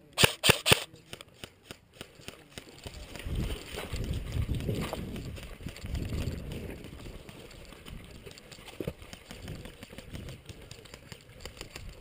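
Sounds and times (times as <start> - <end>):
gear jostling against camera: 0.4 - 12.0
footsteps on dirt and dry grass: 1.6 - 10.6.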